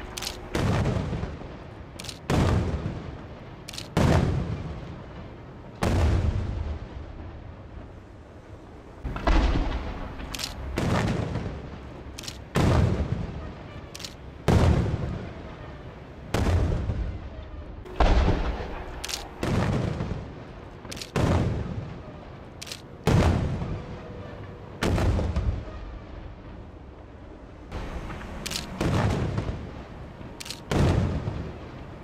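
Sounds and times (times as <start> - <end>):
firework shells booming: 0.0 - 3.1, 9.0 - 13.3, 17.9 - 21.9, 27.7 - 30.0
sharp firework cracks: 9.0 - 13.1.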